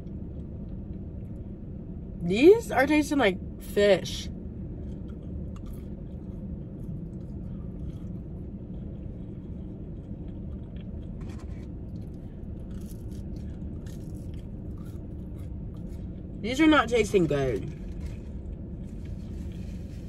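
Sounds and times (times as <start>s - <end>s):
steady low rumble: 0.0s - 20.0s
person chewing: 4.8s - 16.4s.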